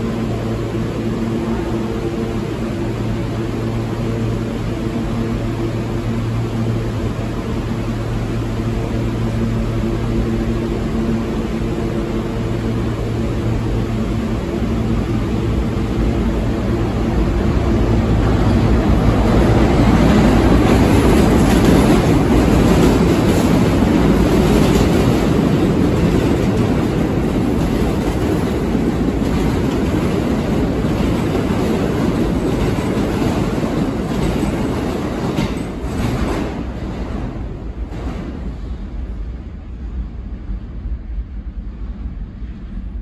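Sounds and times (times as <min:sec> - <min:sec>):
subway train passing: 0:00.0 - 0:43.0
steel wheels clattering on rail: 0:17.5 - 0:39.0.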